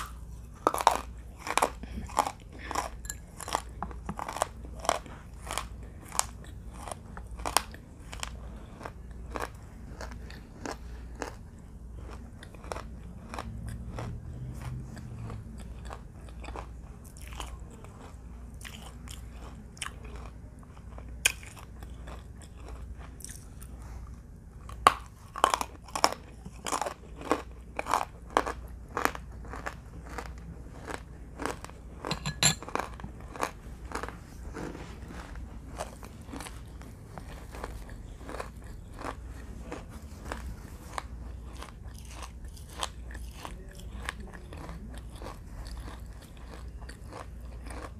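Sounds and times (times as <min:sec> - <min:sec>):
crunchy bites and chewing: 0:00.0 - 0:23.8, 0:24.6 - 0:47.9.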